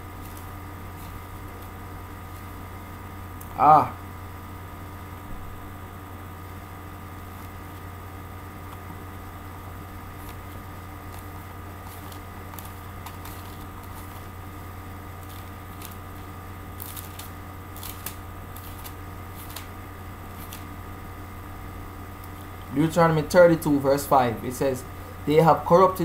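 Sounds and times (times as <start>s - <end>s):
pages rustling: 0.0s - 2.7s, 7.2s - 7.9s, 8.6s - 20.8s
low electrical hum: 0.0s - 26.0s.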